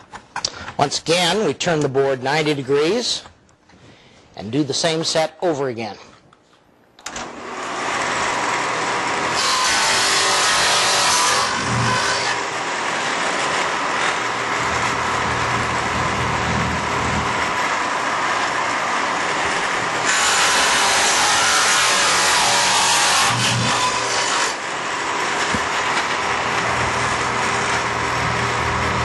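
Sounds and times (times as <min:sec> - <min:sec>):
table saw running: 0:07.2 - 0:29.0
saw blade cutting wood: 0:07.4 - 0:28.6.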